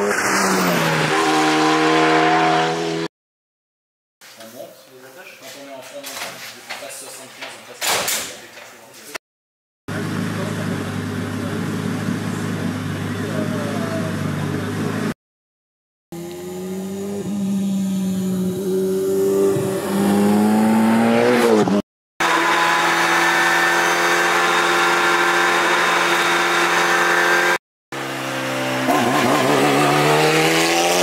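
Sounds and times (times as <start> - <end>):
race car engine revving: 0.0 - 3.1, 16.2 - 31.0.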